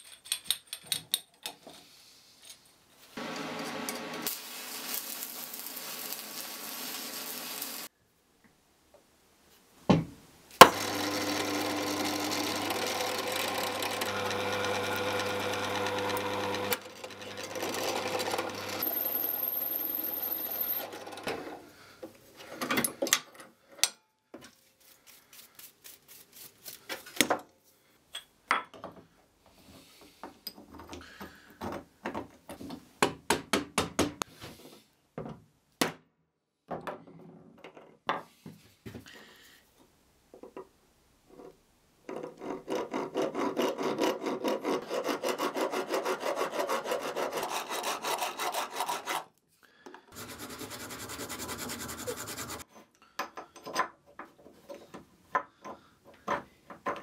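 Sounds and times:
metal parts clicking and knocking: 0:00.0 - 0:01.8
hand file rasping on metal: 0:42.3 - 0:49.3, 0:50.2 - 0:52.6.

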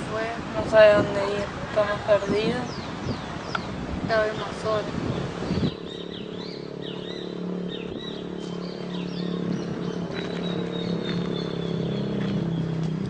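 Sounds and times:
small birds chirping: 0:00.2 - 0:13.0
steady low hum: 0:02.1 - 0:13.0.

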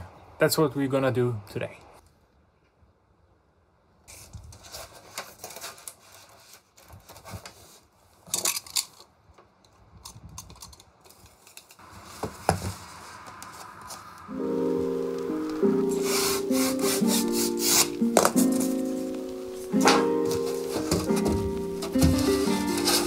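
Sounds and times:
steady scratching: 0:15.7 - 0:19.0, 0:19.6 - 0:23.0.

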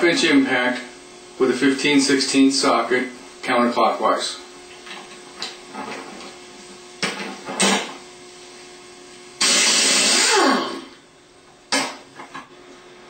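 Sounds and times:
air impact wrench bursts: 0:09.4 - 0:11.0.

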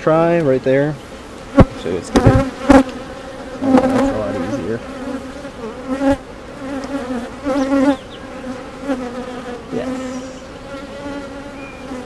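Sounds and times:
bees buzzing: 0:00.7 - 0:12.0.

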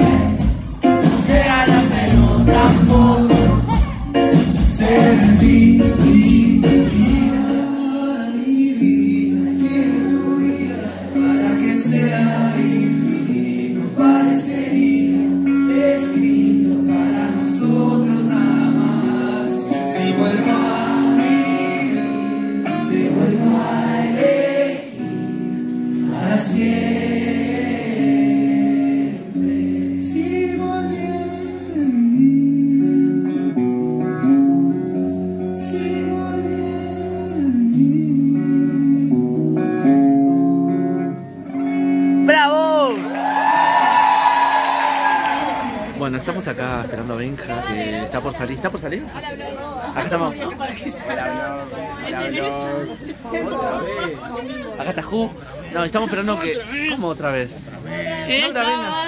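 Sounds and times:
electric guitar: 0:00.0 - 0:46.7
man singing into a microphone: 0:01.0 - 0:26.9, 0:27.5 - 0:39.9.

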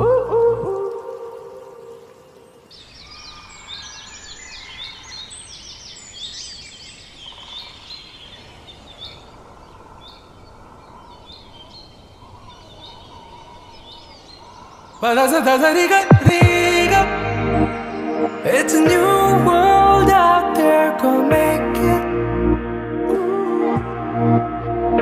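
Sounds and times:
steady outdoor hiss: 0:00.0 - 0:24.9
small birds chirping: 0:01.8 - 0:16.3.

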